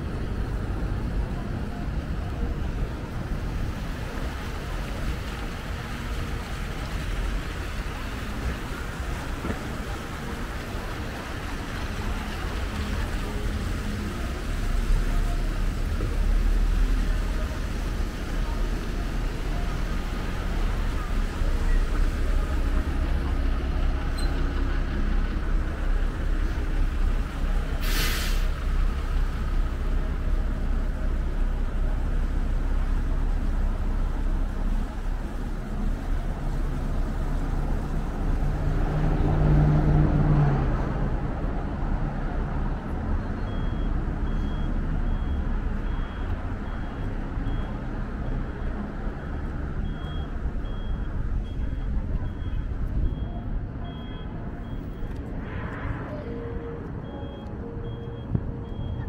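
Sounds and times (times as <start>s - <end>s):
traffic engines rumbling: 0.0s - 59.0s
air brake hiss: 27.8s - 28.6s
high beeps: 43.4s - 59.0s.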